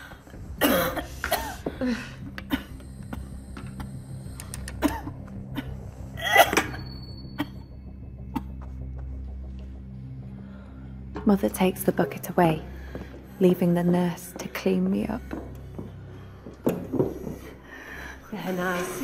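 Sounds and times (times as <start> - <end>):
person coughing and retching: 0.6 - 4.0, 4.7 - 8.7.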